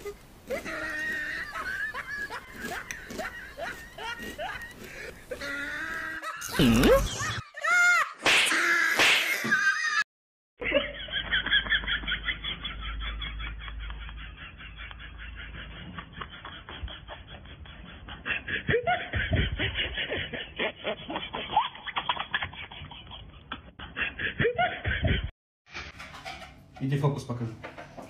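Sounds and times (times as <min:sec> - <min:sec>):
laughter bursts: 0:00.5 - 0:08.1.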